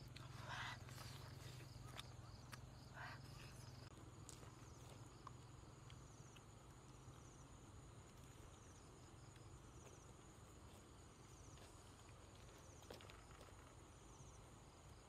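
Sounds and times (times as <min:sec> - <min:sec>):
insect chorus buzzing: 0:00.0 - 0:15.0
low background hum: 0:00.0 - 0:15.0
pulsed insect trills: 0:00.0 - 0:15.0.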